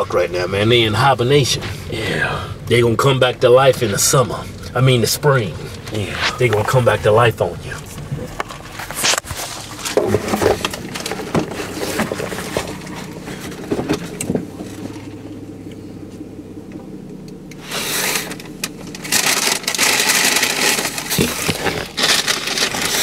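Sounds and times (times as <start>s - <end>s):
low steady hum: 0.0s - 23.0s
handling noise on microphone: 3.3s - 15.2s, 17.6s - 23.0s.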